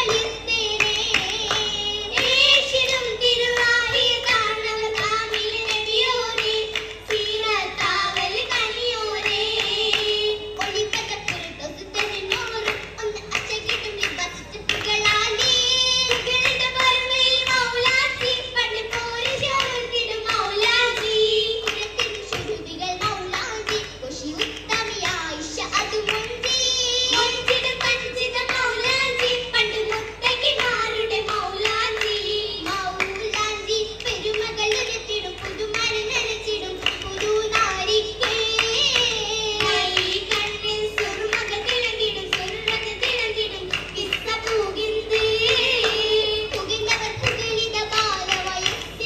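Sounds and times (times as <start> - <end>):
girls singing together: 0.0 - 49.0
rhythmic hand-clapping: 0.0 - 49.0.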